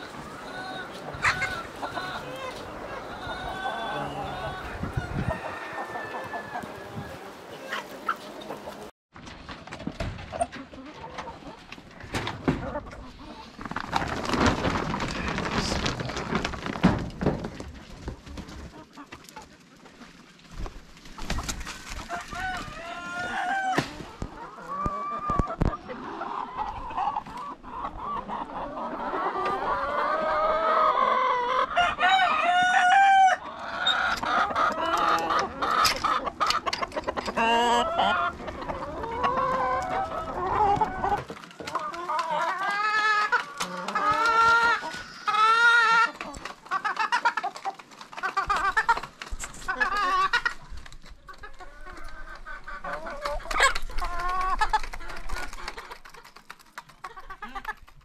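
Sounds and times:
chickens clucking: 0.0 - 8.9, 9.8 - 58.0
rooster crowing: 3.5 - 7.2, 31.8 - 33.4.

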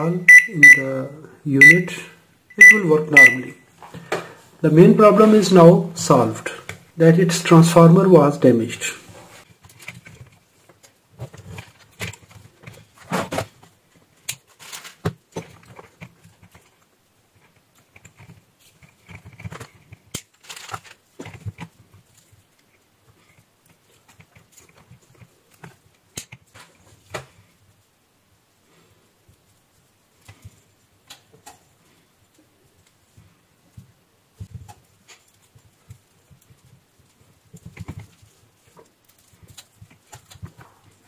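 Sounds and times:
hands handling wires: 9.3 - 27.9, 29.3 - 41.0
plastic cable tie: 17.8 - 22.4.

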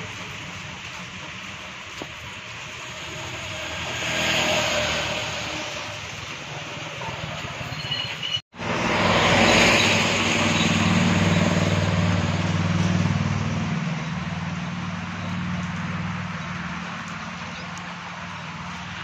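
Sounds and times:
traffic passing: 0.0 - 19.0
low engine hum: 8.6 - 19.0.

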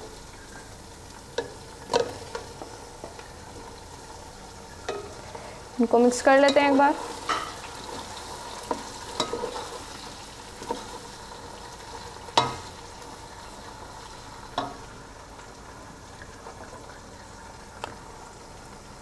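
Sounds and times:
wooden spatula stirring in pan: 0.0 - 14.8
vegetables sizzling in hot oil: 0.0 - 19.0.

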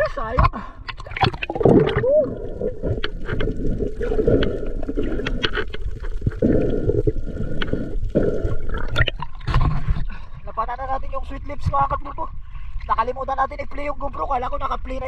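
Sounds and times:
muffled underwater gurgling: 0.5 - 10.6.

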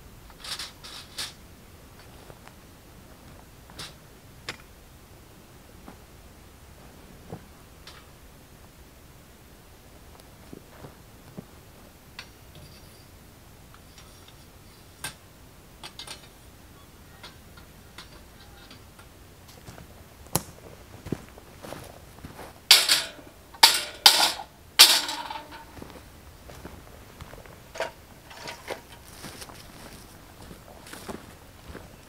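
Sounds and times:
metal scraping and rattling on grill: 0.3 - 1.4, 22.7 - 25.8, 27.7 - 29.3
metallic ring: 22.7 - 25.8.

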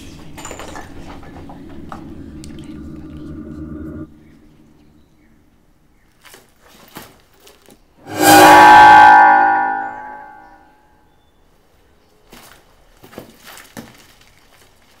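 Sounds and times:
bell ringing: 8.1 - 10.6.

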